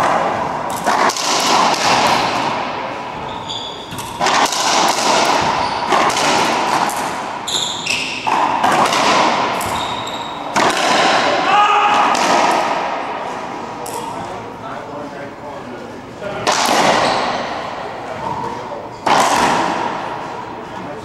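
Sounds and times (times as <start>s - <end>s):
racquetball hits echoing: 0.0s - 14.4s, 16.3s - 20.6s
sneaker squeaks on hardwood: 3.2s - 4.3s, 5.4s - 6.1s, 7.4s - 8.4s, 9.6s - 10.6s, 17.0s - 17.5s.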